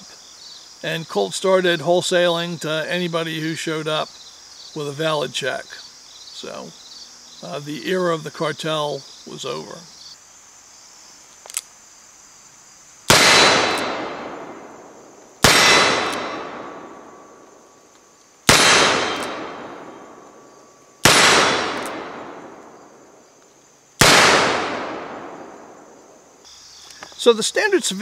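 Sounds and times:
revolver shots echoing: 0:13.1 - 0:17.3, 0:18.5 - 0:20.2, 0:21.0 - 0:22.8, 0:24.0 - 0:25.8.

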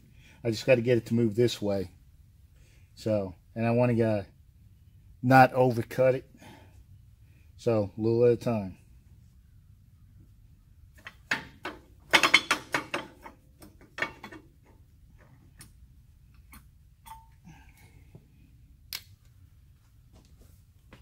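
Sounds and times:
metal bracket clanking: 0:11.0 - 0:14.8, 0:16.4 - 0:17.4.

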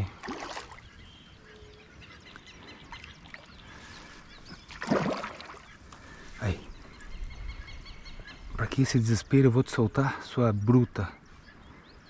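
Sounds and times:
fish splashing at surface: 0:04.7 - 0:05.7.

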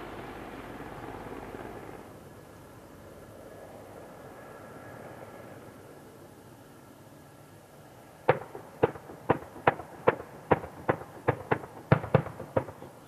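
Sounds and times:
distant cannon fire: 0:08.3 - 0:13.0.

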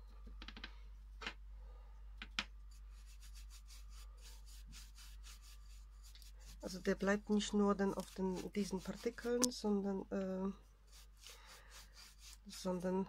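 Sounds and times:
scratchy brushing strokes: 0:02.6 - 0:09.7, 0:10.5 - 0:13.0.

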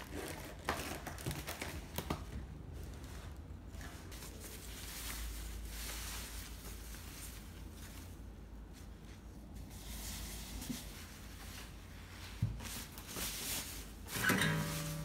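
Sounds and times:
wrapping rustling and crinkling: 0:00.0 - 0:15.0.

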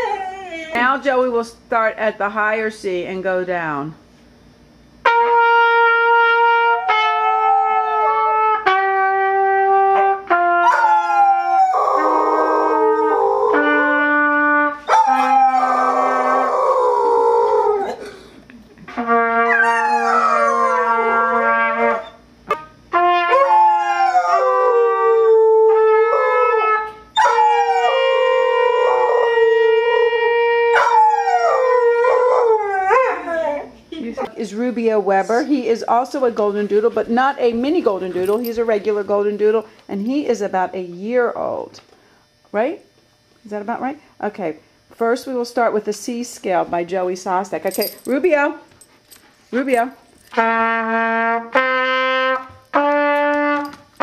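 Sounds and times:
dog howling: 0:00.0 - 0:00.8, 0:06.6 - 0:08.5, 0:10.6 - 0:13.9, 0:14.8 - 0:18.0, 0:19.5 - 0:22.2, 0:23.3 - 0:33.8
trumpet playing held notes: 0:05.0 - 0:10.8, 0:13.5 - 0:15.6, 0:18.9 - 0:23.6, 0:50.3 - 0:54.0.

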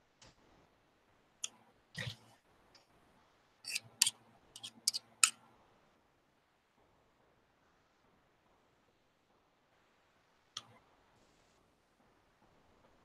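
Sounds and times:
knife clicking against metal: 0:03.7 - 0:05.1.

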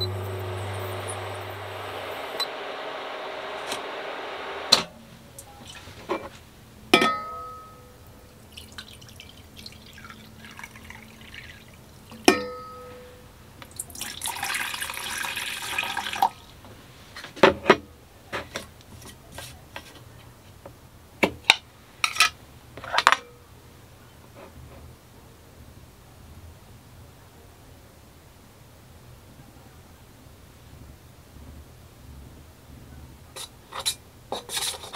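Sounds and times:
water pouring into steel bowl: 0:08.3 - 0:11.8, 0:13.8 - 0:16.5.

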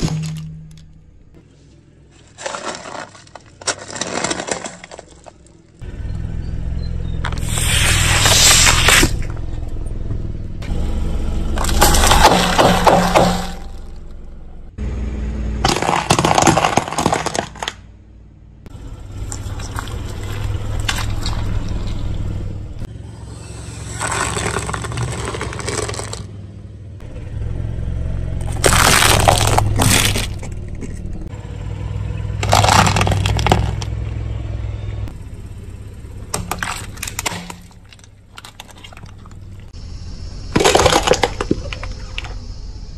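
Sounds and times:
cracking and crunching: 0:00.0 - 0:01.0, 0:02.2 - 0:05.8, 0:11.6 - 0:14.2, 0:15.6 - 0:17.9, 0:19.1 - 0:22.3, 0:24.0 - 0:26.3, 0:28.4 - 0:31.3, 0:32.4 - 0:34.0, 0:36.3 - 0:39.7, 0:40.6 - 0:42.4
car tyre crushing items: 0:00.0 - 0:05.8, 0:07.2 - 0:09.6, 0:11.5 - 0:14.4, 0:15.6 - 0:18.0, 0:18.7 - 0:22.8, 0:23.9 - 0:26.4, 0:28.4 - 0:31.3, 0:32.4 - 0:34.1, 0:36.0 - 0:39.8, 0:40.5 - 0:42.6
low car rumble: 0:00.0 - 0:42.9.

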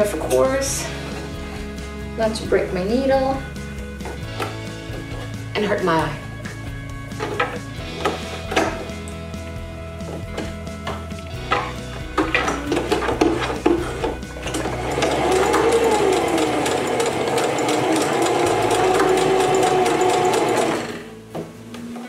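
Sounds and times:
sewing machine stitching: 0:11.5 - 0:21.1.

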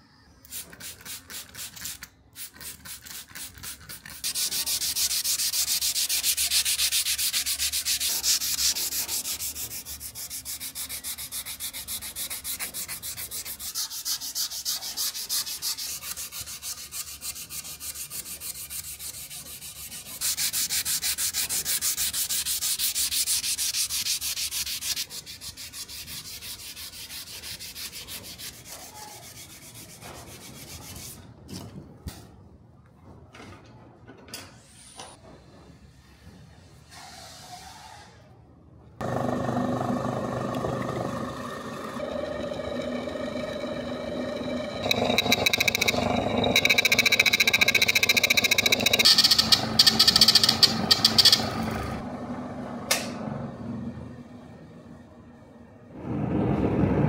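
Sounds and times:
hand sanding strokes: 0:00.5 - 0:31.2.

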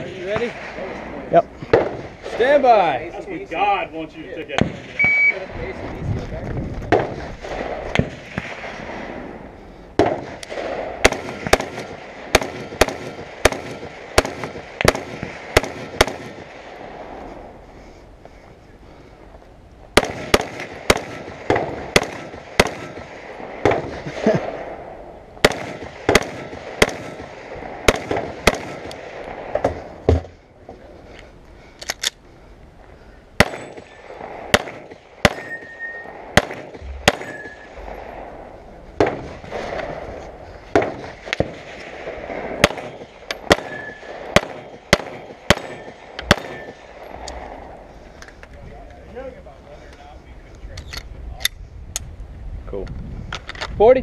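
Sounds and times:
gunshots: 0:00.0 - 0:03.0, 0:04.4 - 0:05.7, 0:06.8 - 0:09.4, 0:10.0 - 0:17.2, 0:20.0 - 0:30.2, 0:33.4 - 0:47.8
handgun shots: 0:36.4 - 0:37.6.

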